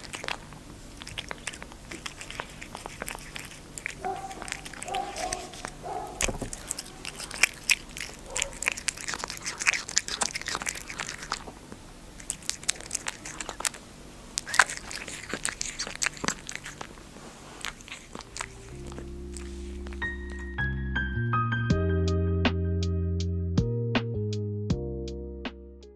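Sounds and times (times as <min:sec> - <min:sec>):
cat chewing clicks: 0:00.0 - 0:13.8, 0:14.4 - 0:17.0, 0:17.6 - 0:20.5.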